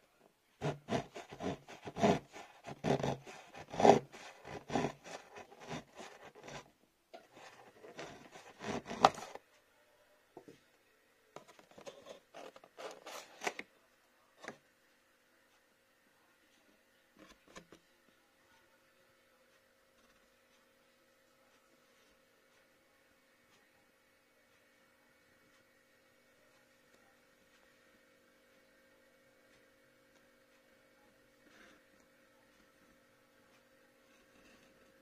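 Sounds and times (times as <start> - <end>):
cardboard scraping: 0.6 - 6.7, 7.3 - 9.4, 11.4 - 13.6
knife sawing through cardboard: 0.6 - 6.7, 7.3 - 9.4.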